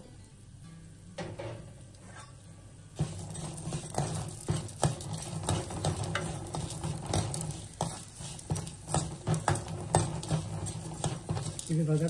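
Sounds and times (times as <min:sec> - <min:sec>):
light sizzle: 0:00.0 - 0:12.0
spatula knocking pan: 0:03.0 - 0:12.0
spatula scraping pan: 0:03.0 - 0:12.0.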